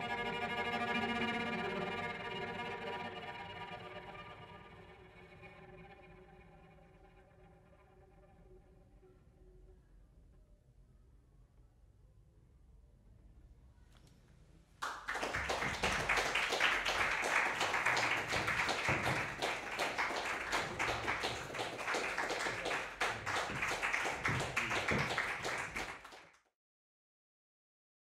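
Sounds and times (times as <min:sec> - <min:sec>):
audience applauding: 0:14.8 - 0:26.5.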